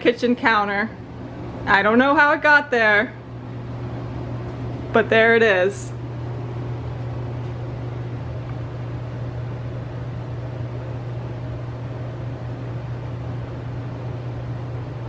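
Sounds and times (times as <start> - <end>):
low mechanical hum with hiss: 0.0 - 15.0.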